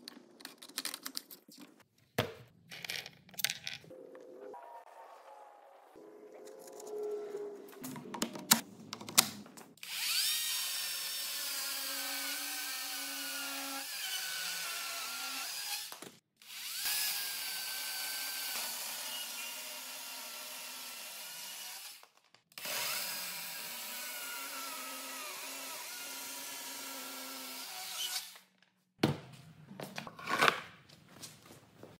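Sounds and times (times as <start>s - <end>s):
cordless chainsaw cutting wood: 9.8s - 15.6s.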